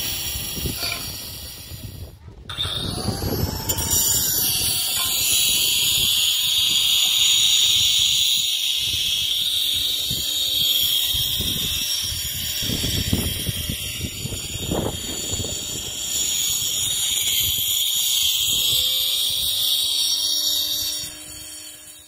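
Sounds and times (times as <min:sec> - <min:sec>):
wind rumble buffeting microphone: 0:00.1 - 0:06.8, 0:08.8 - 0:17.8.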